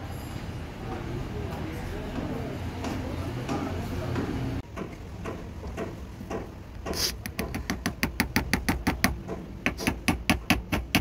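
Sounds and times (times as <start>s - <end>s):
short sharp scrape: 6.9s - 7.2s.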